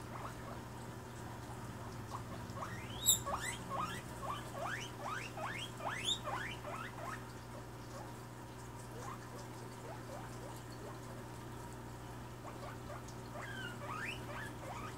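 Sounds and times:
guinea pig squeaking: 0.0s - 0.6s, 1.9s - 8.1s, 8.9s - 11.0s, 12.4s - 14.9s.

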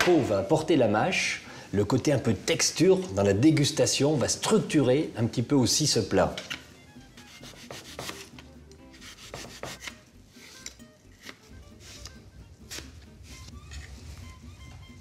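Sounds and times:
knife slicing apple on board: 7.2s - 13.9s.

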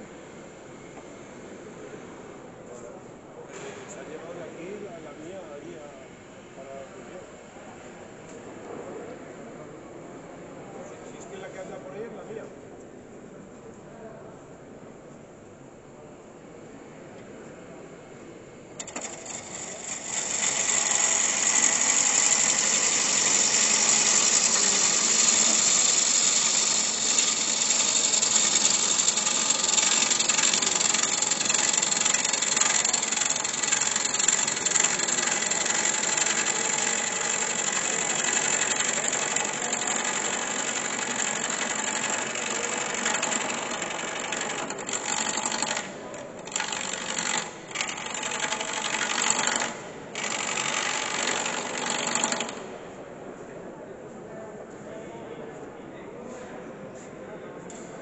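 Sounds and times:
woodturning gouge cutting wood on lathe: 18.8s - 52.7s.

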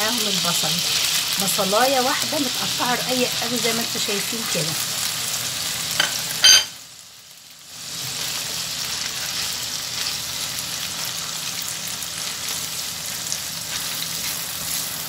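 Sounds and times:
onion sizzling in oil: 0.0s - 15.0s
spatula stirring: 13.1s - 15.0s.

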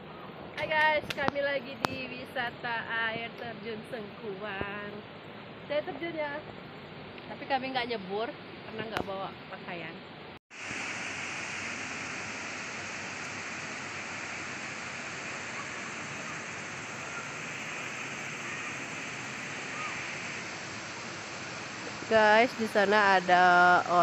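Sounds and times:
waterfall rushing: 10.6s - 24.0s.

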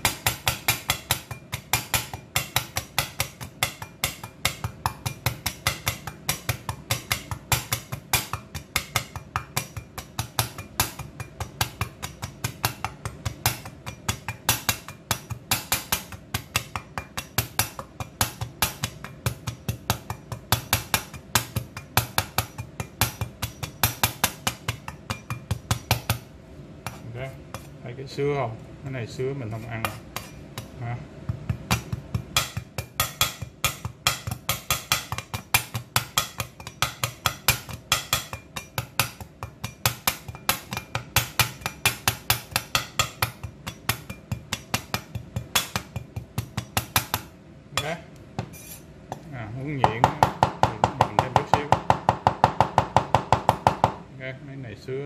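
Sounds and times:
cleaver chopping on wooden board: 31.3s - 48.5s.

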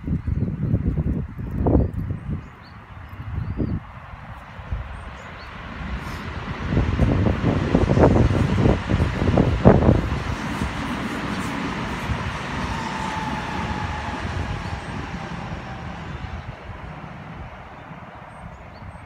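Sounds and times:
electric train running past: 4.0s - 19.0s.

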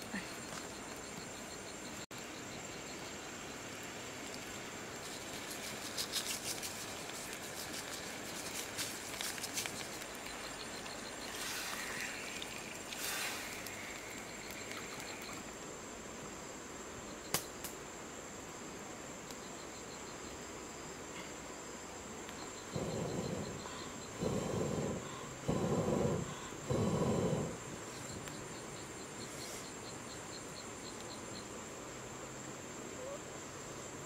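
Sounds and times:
crickets chirring: 0.0s - 34.0s
fish crackling and hissing in a wok: 4.3s - 15.4s.

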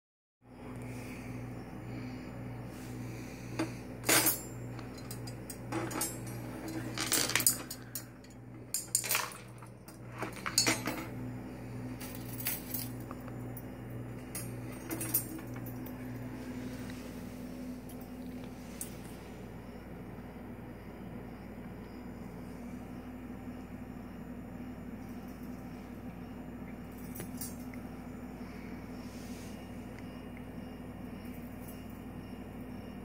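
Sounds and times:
steady low hum: 0.4s - 33.0s
glass and metal clinking: 3.6s - 11.1s.

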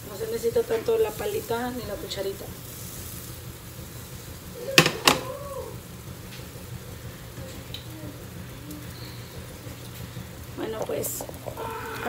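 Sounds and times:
faint frying sizzle: 0.0s - 12.0s
steady low hum: 0.0s - 12.0s.

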